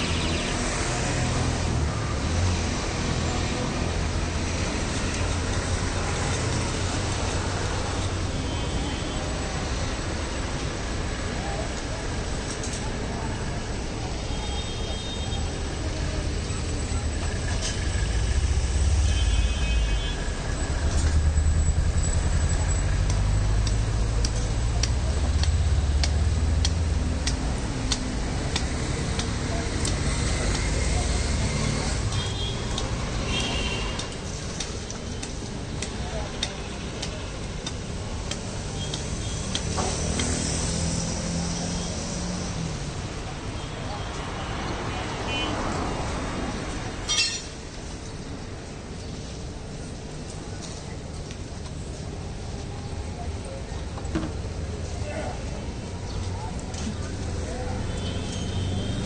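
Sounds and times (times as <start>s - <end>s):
low street traffic rumble: 0.0s - 59.0s
passing vehicles hiss: 15.5s - 59.0s.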